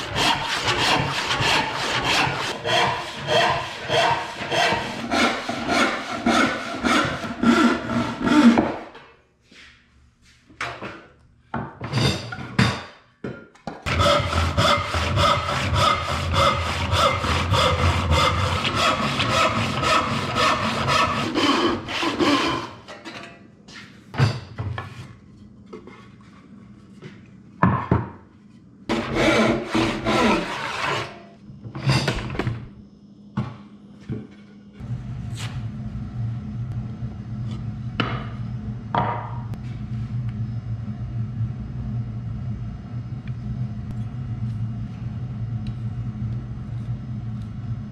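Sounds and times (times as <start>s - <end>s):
hand saw cutting wood: 0.0s - 8.9s, 13.9s - 22.9s, 28.9s - 31.2s.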